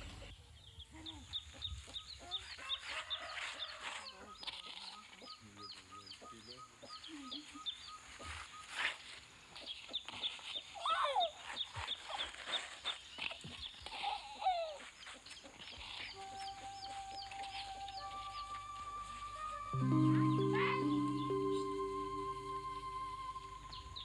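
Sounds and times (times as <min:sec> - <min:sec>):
loud rising and falling call: 0:16.2 - 0:24.0
short high chirps: 0:19.7 - 0:24.0.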